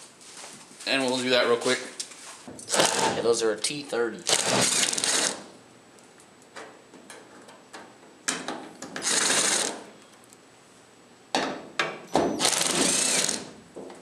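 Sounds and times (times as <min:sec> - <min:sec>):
cordless drill running: 0:02.7 - 0:03.1, 0:04.3 - 0:05.4, 0:09.0 - 0:09.8, 0:12.4 - 0:13.5.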